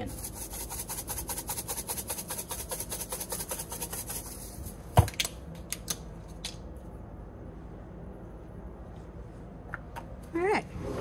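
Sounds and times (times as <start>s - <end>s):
plastic shaker shaken rapidly: 0.0s - 4.8s.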